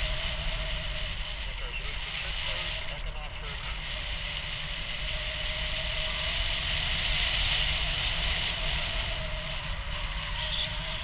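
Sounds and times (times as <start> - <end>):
wind rushing over camera: 0.0 - 11.0
faint steady whistle: 4.8 - 11.0.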